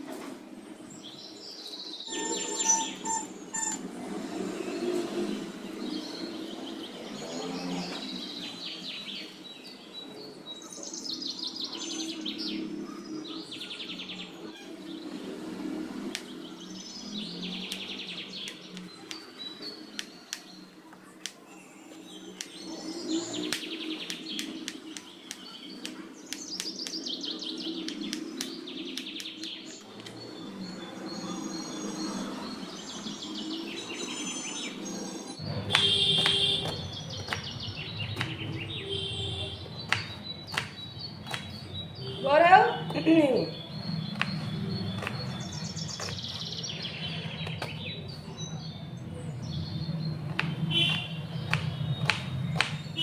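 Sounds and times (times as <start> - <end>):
birds chirping: 0.0 - 53.0
knife chopping on wooden board: 35.7 - 38.5, 39.8 - 41.6, 50.3 - 52.8.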